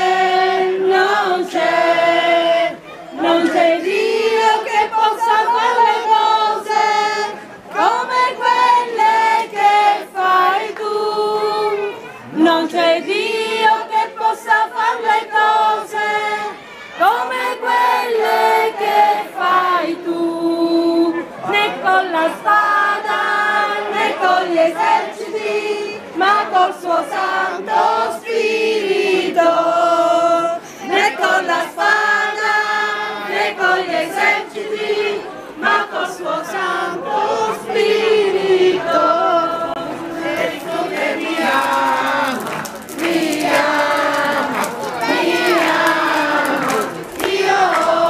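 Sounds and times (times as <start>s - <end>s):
crowd singing together: 0.0s - 48.0s.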